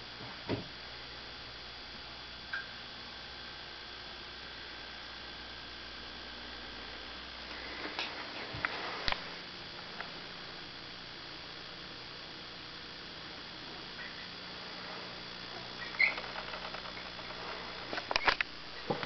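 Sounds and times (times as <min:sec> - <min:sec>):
electrical mains hum: 0:00.0 - 0:19.0
sharp clicks and knocks: 0:15.8 - 0:19.0.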